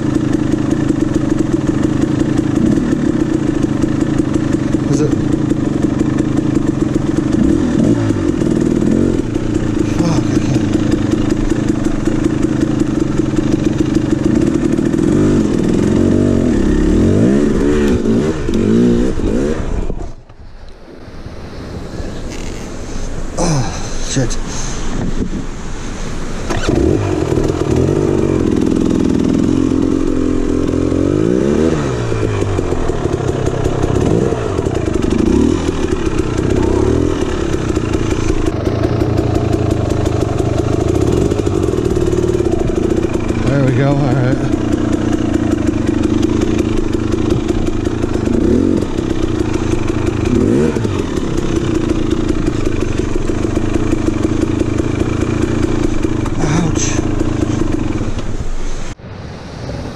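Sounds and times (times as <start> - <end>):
dirt bike engine revving: 0.0 - 20.2, 26.3 - 59.0.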